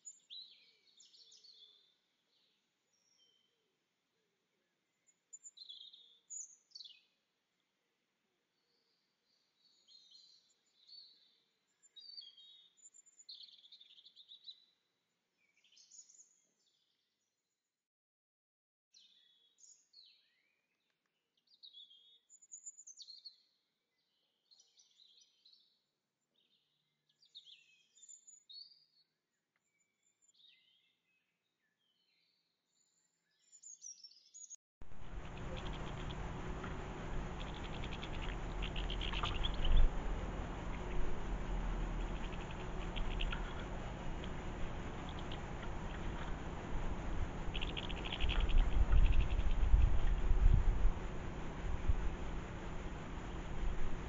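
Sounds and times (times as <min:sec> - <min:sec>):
finch twittering: 0:34.9 - 0:54.0.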